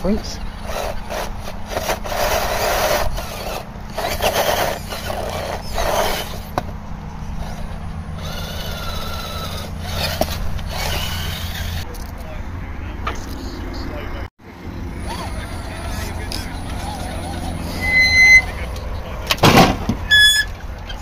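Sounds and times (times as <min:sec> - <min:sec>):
electric motor and gears whining: 0:00.0 - 0:11.9, 0:14.7 - 0:20.6.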